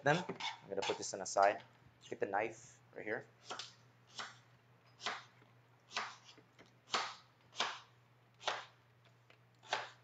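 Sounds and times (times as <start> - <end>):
knife chopping on cutting board: 0.1 - 1.1, 3.4 - 4.4, 5.0 - 8.8, 9.6 - 10.0.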